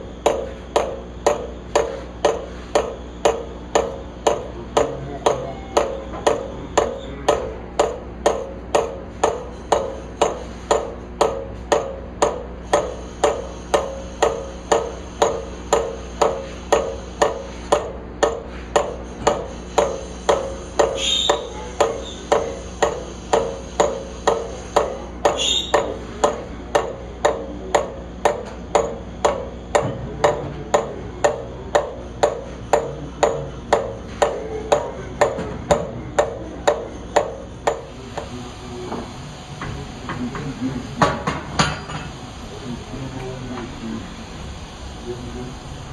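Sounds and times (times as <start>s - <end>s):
lathe humming: 0.0s - 45.9s
short squeaks: 21.0s - 22.2s, 25.4s - 25.7s.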